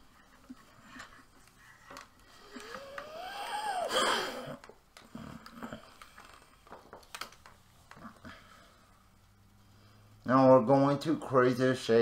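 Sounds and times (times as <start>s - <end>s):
drawing tablet being handled: 4.9s - 8.2s.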